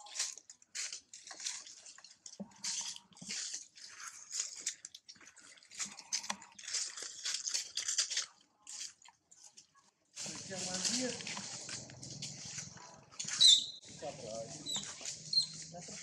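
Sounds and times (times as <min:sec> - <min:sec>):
leaves and twigs rustling: 0:00.0 - 0:16.0.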